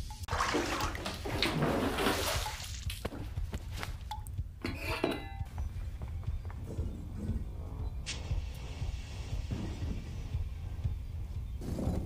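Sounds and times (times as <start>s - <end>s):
bathwater sloshing and splashing: 0.0s - 3.0s.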